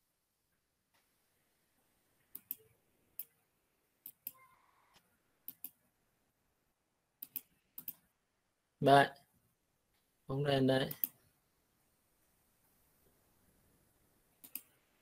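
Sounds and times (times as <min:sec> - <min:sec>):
computer mouse clicking: 0:02.3 - 0:03.4, 0:04.0 - 0:05.8, 0:07.2 - 0:08.1, 0:10.9 - 0:11.2, 0:14.4 - 0:14.8.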